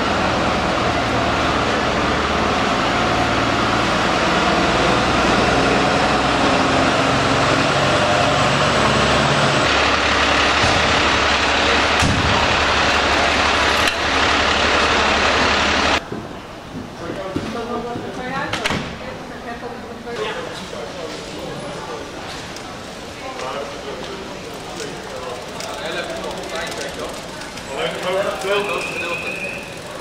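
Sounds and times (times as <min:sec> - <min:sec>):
diesel engine idling: 0:00.0 - 0:16.0, 0:24.3 - 0:30.0.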